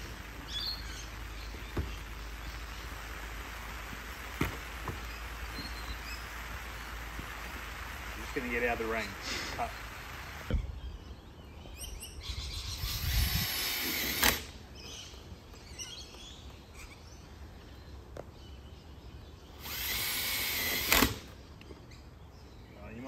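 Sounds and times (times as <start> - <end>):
cordless drill driving screws: 12.8 - 14.5, 19.6 - 21.3.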